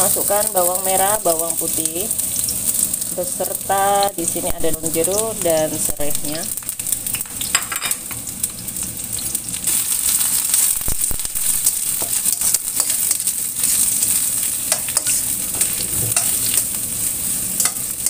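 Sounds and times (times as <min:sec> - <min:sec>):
aromatics sizzling in hot oil: 0:00.0 - 0:18.0
metal spatula scraping wok: 0:11.6 - 0:18.0.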